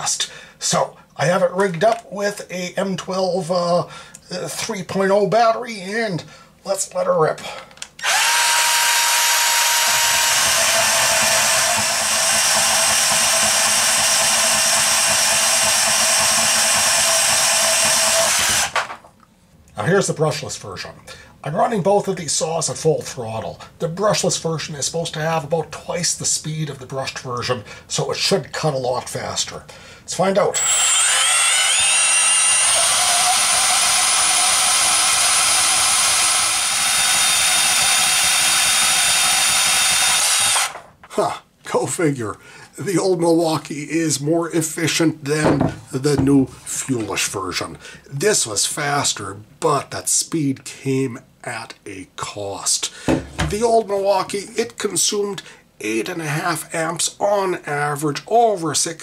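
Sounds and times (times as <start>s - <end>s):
bandsaw cutting metal: 8.0s - 18.9s, 30.5s - 40.8s.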